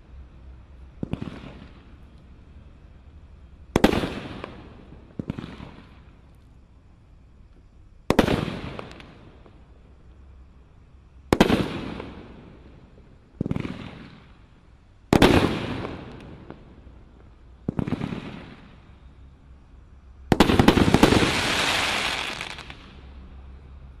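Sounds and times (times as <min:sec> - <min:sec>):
firework crackling: 0:03.6 - 0:06.4, 0:20.2 - 0:23.5
firework bangs: 0:03.8 - 0:06.0, 0:11.3 - 0:12.4, 0:13.4 - 0:14.3, 0:15.1 - 0:16.7, 0:17.6 - 0:18.8, 0:20.3 - 0:23.0.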